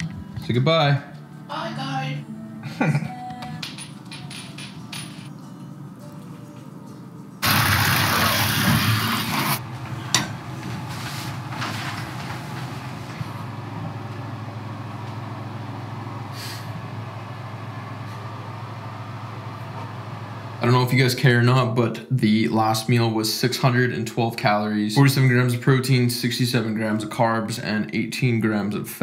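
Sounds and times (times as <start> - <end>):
shower water spraying: 7.4 - 9.6
steady low hum: 7.4 - 21.4.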